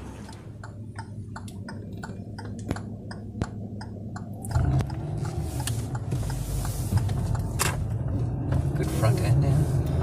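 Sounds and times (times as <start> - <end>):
car engine rumbling: 0.0 - 10.0
rapid regular ticking: 0.2 - 8.2.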